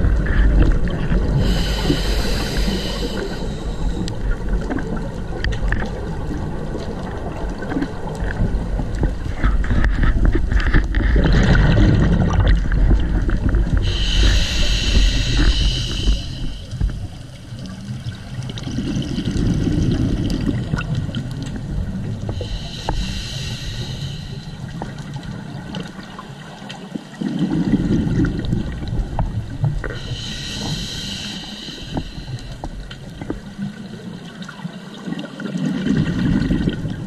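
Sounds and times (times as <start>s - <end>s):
regulator hissing inhalation: 1.4s - 4.2s, 13.8s - 17.0s, 22.4s - 24.7s, 29.9s - 32.7s
muffled bubbling exhalation: 11.2s - 17.1s.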